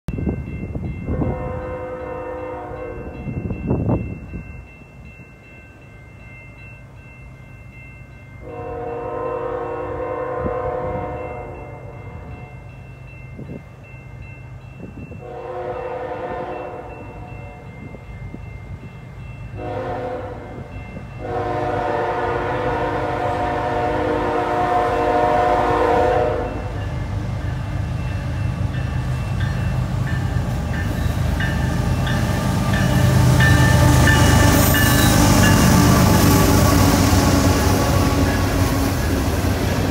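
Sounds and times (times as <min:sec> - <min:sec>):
low locomotive engine rumble: 0:00.1 - 0:39.9
locomotive air horn blasts: 0:01.1 - 0:03.2, 0:08.4 - 0:11.9, 0:15.2 - 0:17.6, 0:19.6 - 0:26.8.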